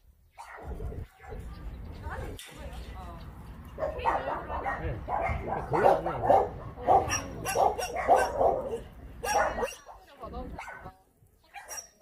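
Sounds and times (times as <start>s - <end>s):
dogs barking: 0.4s - 1.6s, 3.8s - 10.0s, 10.6s - 10.9s, 11.6s - 12.0s.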